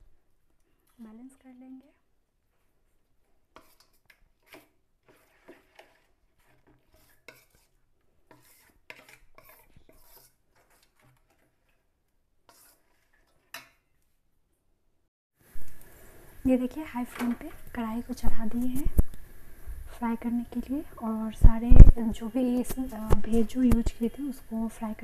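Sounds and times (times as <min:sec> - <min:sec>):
spoon scraping metal bowl: 0:03.5 - 0:11.9, 0:12.5 - 0:13.8.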